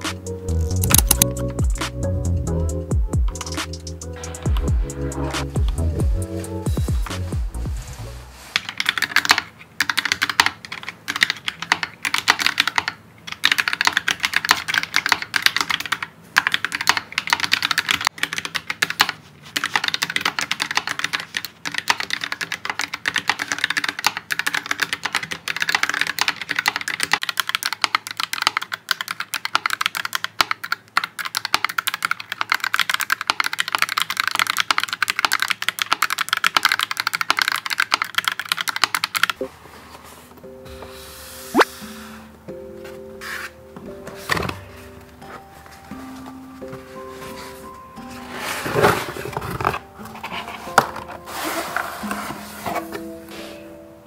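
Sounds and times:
mechanical keyboard typing: 0.5s - 1.8s, 3.2s - 4.8s, 8.6s - 39.4s.

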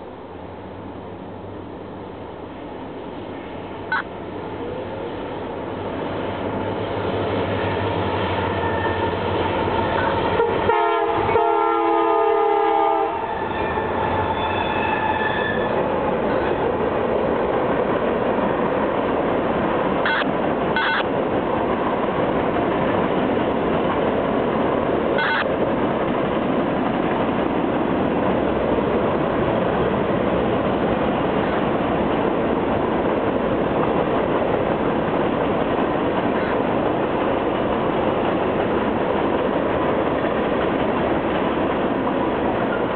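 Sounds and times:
freight train rolling past: 0.0s - 42.9s
locomotive air horn: 9.8s - 15.8s, 20.8s - 21.0s, 25.2s - 25.5s.

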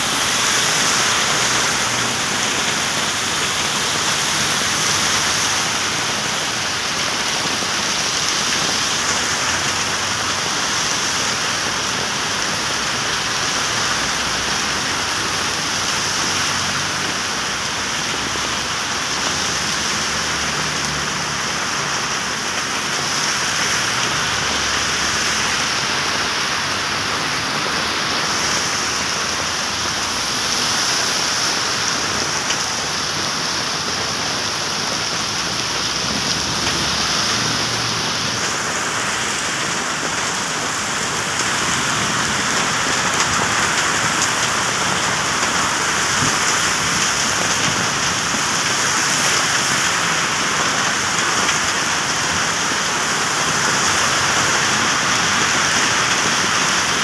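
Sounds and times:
cars driving through water: 0.0s - 57.0s
heavy rain on wet road: 0.0s - 57.0s.

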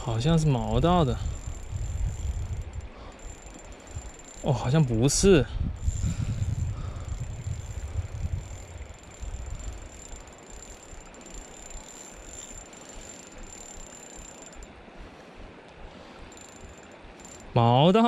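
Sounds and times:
fishing reel winding: 0.0s - 14.7s, 16.1s - 17.6s
low microphone rumble: 4.9s - 9.9s.

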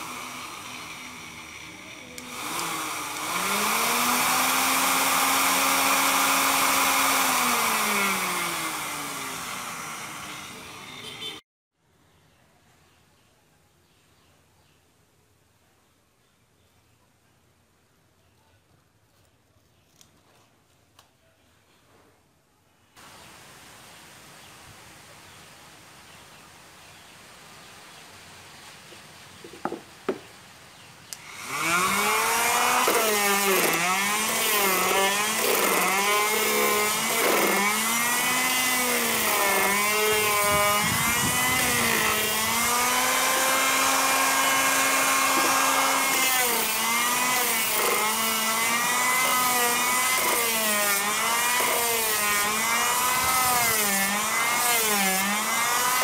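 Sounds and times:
hand sander motor on wood: 0.0s - 11.3s, 29.4s - 30.3s, 31.1s - 56.0s.

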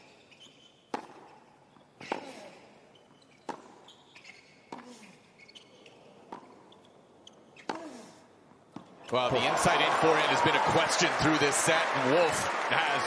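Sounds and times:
shoe squeaks: 0.0s - 8.4s
tennis ball struck by rackets: 0.9s - 1.3s.

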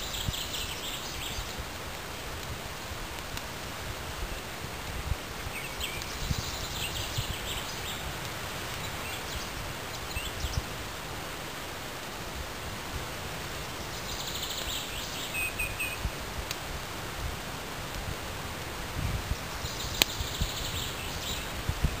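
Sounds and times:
birds chirping and trilling: 0.0s - 1.6s, 5.5s - 8.1s, 8.7s - 10.7s, 13.6s - 16.0s, 19.4s - 22.0s
outdoor hiss: 0.0s - 22.0s.

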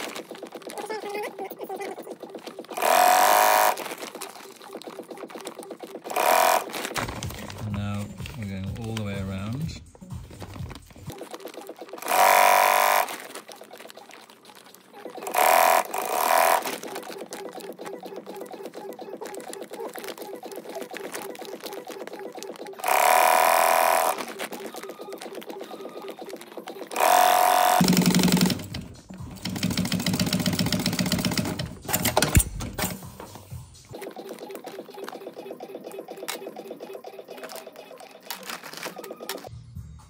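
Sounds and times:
sewing machine stitching: 2.3s - 7.0s, 11.1s - 13.4s, 15.0s - 19.9s, 22.8s - 33.0s.

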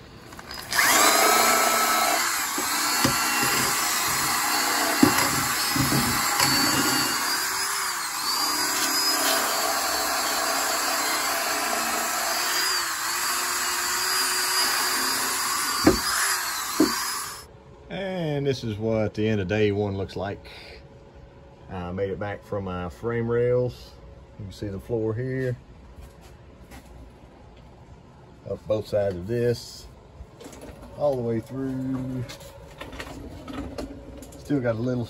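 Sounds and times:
drill wire brush scrubbing metal: 0.5s - 17.4s
sharp knocks: 15.8s - 16.2s.

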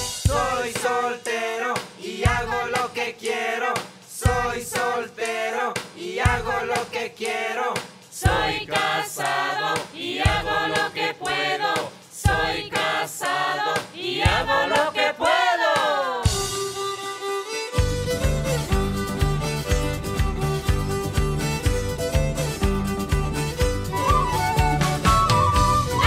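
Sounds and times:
group singing in short phrases: 0.2s - 16.4s
band with violin playing: 16.3s - 26.0s
low beat: 17.7s - 26.0s.

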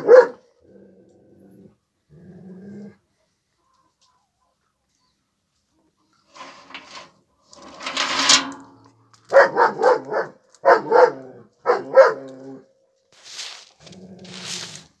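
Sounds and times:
dog barking: 0.0s - 0.5s, 9.3s - 12.4s.

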